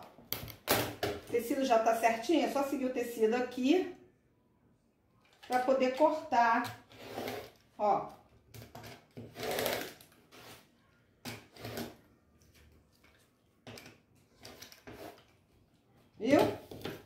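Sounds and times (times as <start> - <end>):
rotary cutter cutting fabric: 9.3 - 10.0.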